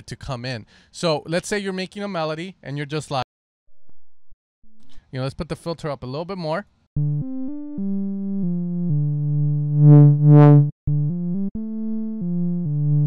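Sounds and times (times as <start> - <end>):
synthesizer melody: 7.0 - 13.0.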